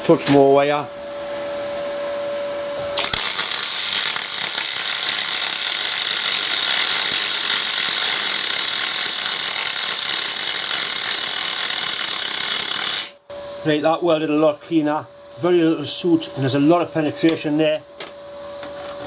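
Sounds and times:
welding arc crackling hiss: 3.0s - 13.2s.

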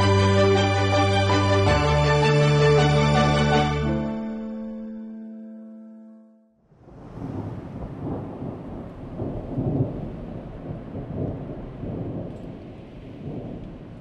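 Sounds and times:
low rolling rumble: 6.8s - 14.0s.

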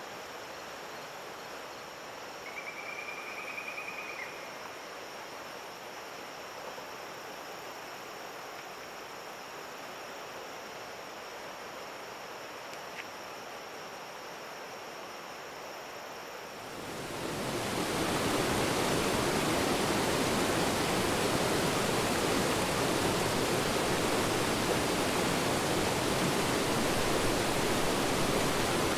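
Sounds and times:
faint outdoor hiss: 0.0s - 28.9s
river rushing over rocks: 16.5s - 28.9s.

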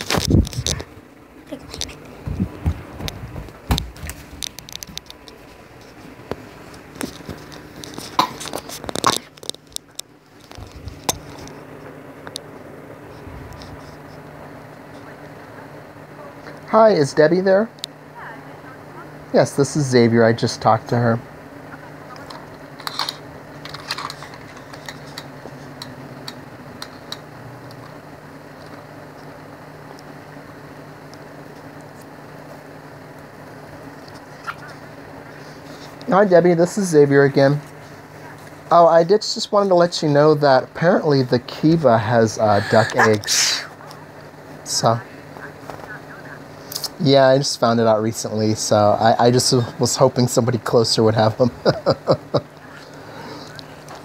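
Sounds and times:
recording device handling noise: 0.0s - 16.7s, 21.8s - 38.7s, 45.2s - 47.0s, 51.4s - 54.0s
faint low hum: 0.0s - 54.0s.

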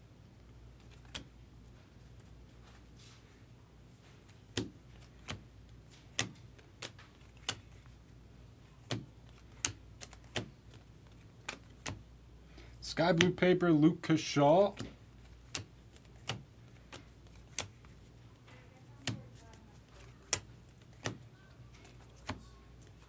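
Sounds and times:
low steady hum: 0.0s - 23.0s
trading cards clicking: 0.8s - 1.3s, 4.5s - 8.0s, 8.8s - 12.0s, 13.1s - 13.4s, 14.7s - 23.0s.

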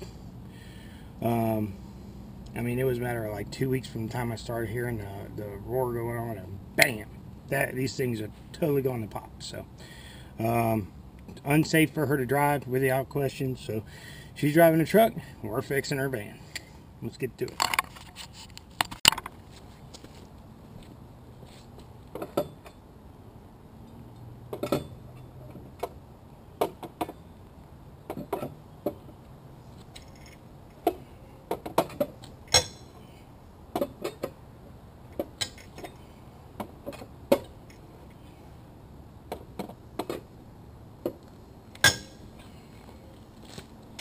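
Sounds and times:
lug wrench clinking on lug nuts: 22.2s - 22.9s, 23.8s - 26.0s, 28.1s - 29.2s, 29.9s - 34.4s, 35.1s - 37.9s, 41.0s - 42.6s.

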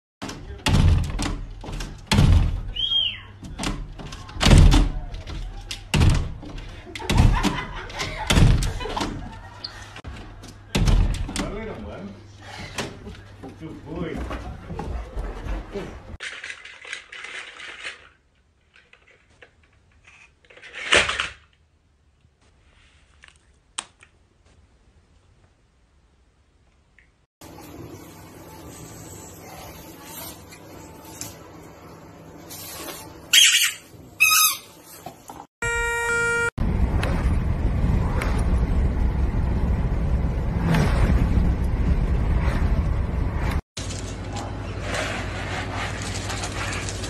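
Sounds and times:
door rattling in its frame: 0.2s - 2.7s, 3.4s - 9.4s
dog paws banging on glass door: 3.4s - 9.4s
brief high squeak: 33.3s - 34.7s, 35.6s - 36.5s.

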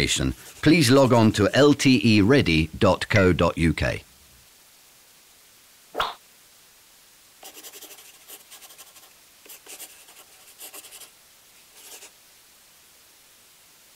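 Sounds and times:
marker scratching while writing: 0.0s - 0.9s, 7.4s - 11.1s, 11.7s - 12.1s.

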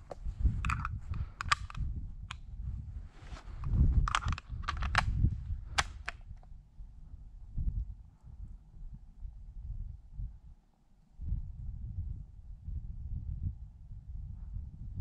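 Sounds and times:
microphone handling rumble: 0.0s - 8.6s
sharp clicks: 0.1s - 2.4s, 3.6s - 6.4s.

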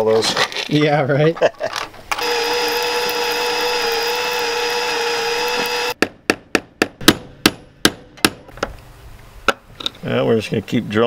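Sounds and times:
power drill drilling: 2.1s - 6.0s
sharp hammer strikes: 6.0s - 8.5s.

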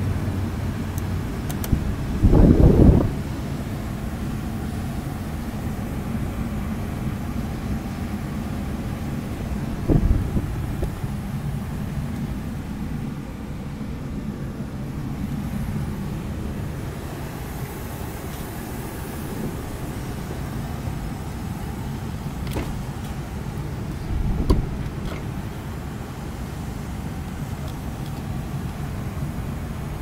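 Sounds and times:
truck engine idling: 0.0s - 30.0s
light click: 0.9s - 1.8s.

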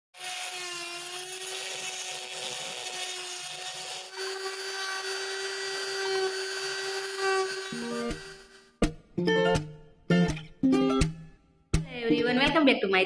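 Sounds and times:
cast saw whining: 0.2s - 8.8s.

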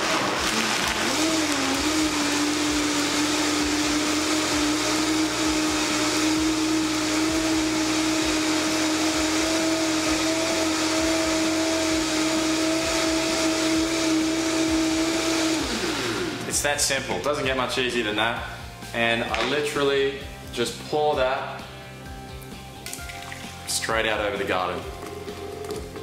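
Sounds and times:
contents churning: 0.0s - 4.2s
blender motor whine: 0.0s - 16.6s.

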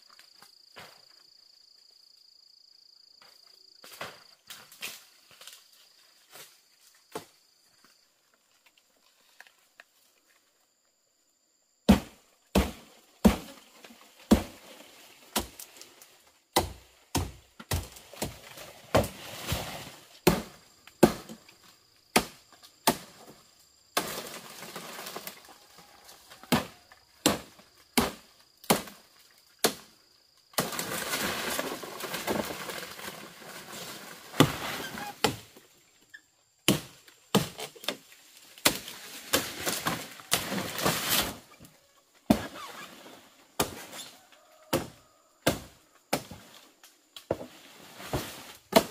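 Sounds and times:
chopping wood: 11.9s - 13.6s, 14.3s - 14.6s, 16.5s - 19.2s, 20.2s - 21.4s, 22.1s - 23.2s, 26.5s - 29.0s, 34.3s - 35.5s, 36.6s - 38.0s, 42.3s - 42.6s, 44.7s - 46.4s.

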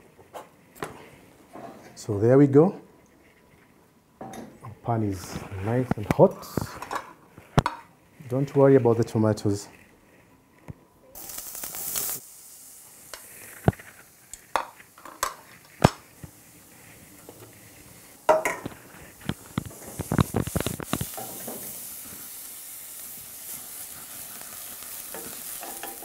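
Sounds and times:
onions sizzling in hot oil: 11.1s - 26.0s
wooden spoon knocking and scraping pan: 18.3s - 20.0s, 25.1s - 26.0s.

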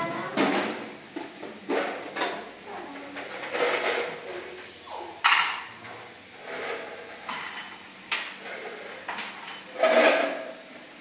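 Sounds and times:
dishes clattering: 5.2s - 10.5s.

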